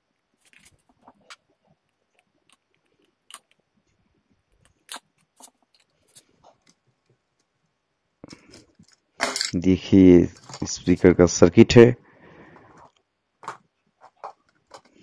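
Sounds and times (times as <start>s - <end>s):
plastic clicks and scrapes: 12.6s - 15.0s.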